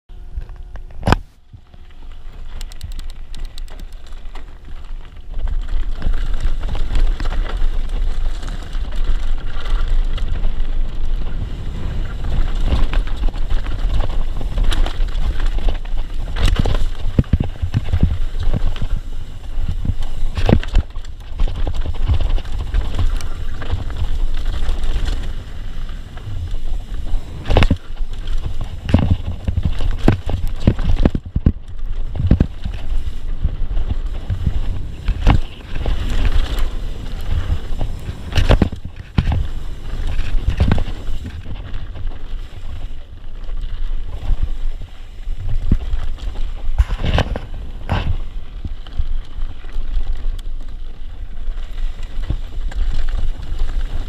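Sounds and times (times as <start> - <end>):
wind rumbling on microphone: 0.1 - 54.0
tyres rolling over gravel: 1.6 - 54.0
bike knocking on rocks: 12.2 - 42.8.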